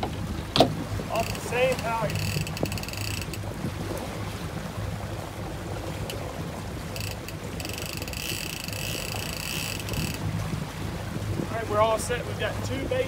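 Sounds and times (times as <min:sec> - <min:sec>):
fishing reel clicker ratcheting: 0:01.2 - 0:03.4, 0:06.9 - 0:10.2.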